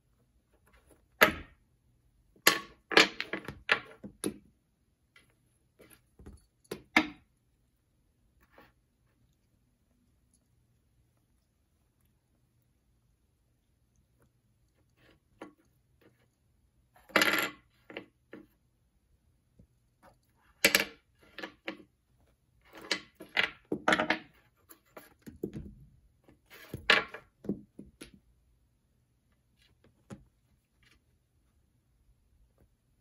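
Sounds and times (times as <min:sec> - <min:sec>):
wooden blocks clacking and scraping: 0:02.4 - 0:04.4, 0:05.2 - 0:07.3, 0:20.5 - 0:22.0, 0:22.6 - 0:25.7, 0:26.3 - 0:28.2.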